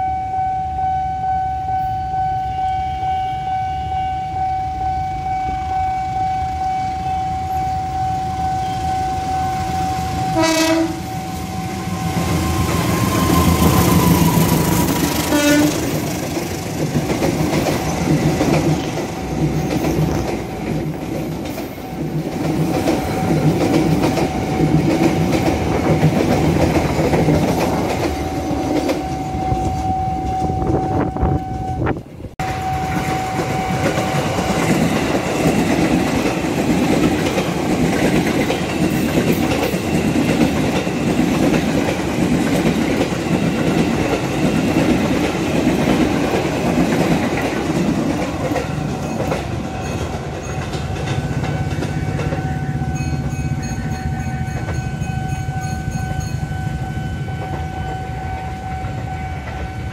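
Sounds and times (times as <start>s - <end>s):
level crossing warning tone: 0.0s - 16.4s, 23.0s - 36.3s, 48.0s - 59.9s
train wheels clattering: 10.3s - 30.6s, 32.4s - 56.5s.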